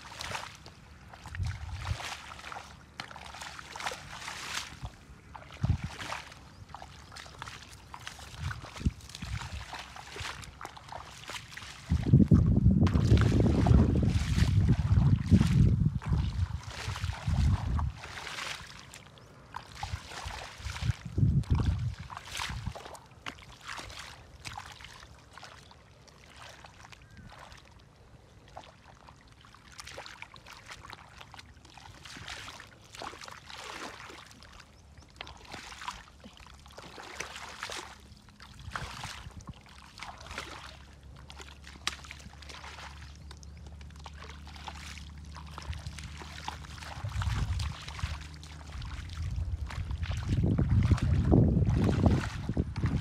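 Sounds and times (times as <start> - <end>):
splashing steps in muddy water: 0.0 - 53.0
wind buffeting microphone: 1.2 - 2.1, 4.8 - 6.7, 8.2 - 10.5, 11.7 - 18.7, 19.8 - 22.9, 45.6 - 53.0.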